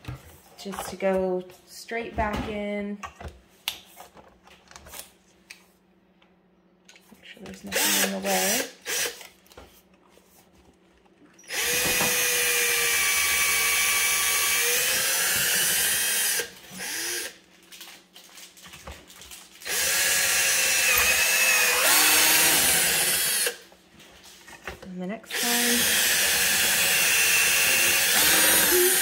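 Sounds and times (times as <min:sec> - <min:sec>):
cordless drill whining: 0:07.7 - 0:09.3, 0:11.4 - 0:17.4, 0:19.6 - 0:23.6, 0:25.3 - 0:29.0.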